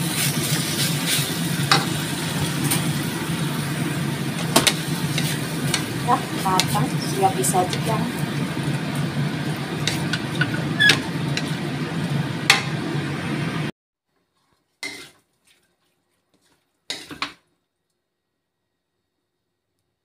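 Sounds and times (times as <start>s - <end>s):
spatula scraping steel wok: 0.0s - 3.0s, 4.4s - 8.4s, 9.0s - 11.8s, 14.4s - 17.4s
steady low stir-frying noise: 0.0s - 20.0s.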